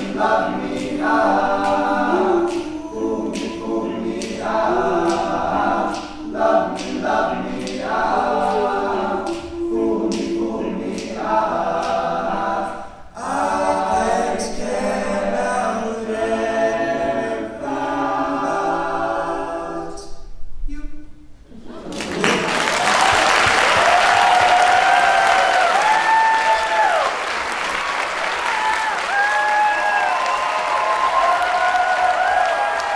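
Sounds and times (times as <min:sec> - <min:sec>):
male a cappella group singing: 0:00.0 - 0:20.3.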